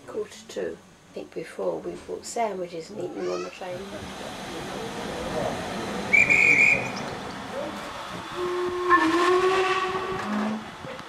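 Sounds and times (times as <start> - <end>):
steady hiss of steam: 3.4 - 11.0
steam locomotive whistle: 6.0 - 10.8
shrill guard's whistle blast: 6.1 - 7.0.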